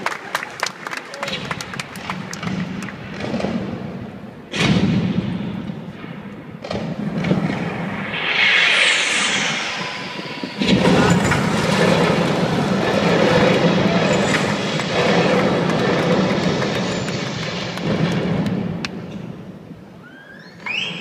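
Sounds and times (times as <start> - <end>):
loud dense rumble: 7.1 - 18.8
whoosh falling in pitch: 7.2 - 17.8.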